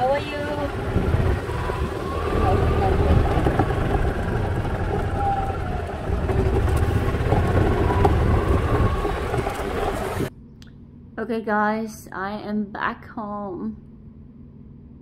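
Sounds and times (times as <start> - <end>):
golf cart rumbling on gravel: 0.0 - 10.3.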